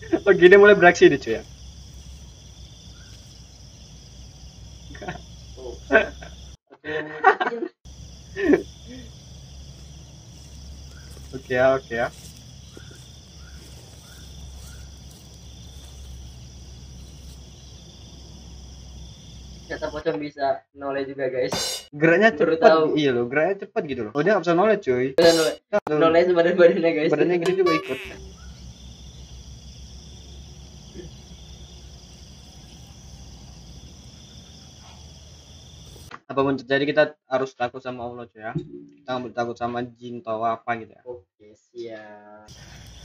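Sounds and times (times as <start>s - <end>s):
crickets trilling: 0.0s - 6.6s, 7.8s - 20.0s, 27.5s - 36.1s, 42.5s - 43.0s
short high chirps: 27.5s - 28.2s.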